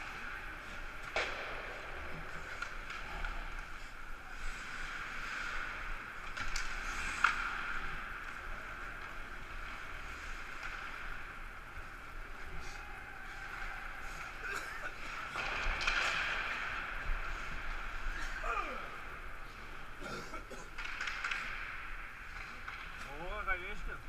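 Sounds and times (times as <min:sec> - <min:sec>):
hockey sticks and puck clacking: 0:00.0 - 0:24.0
skates hissing on ice: 0:01.8 - 0:11.3.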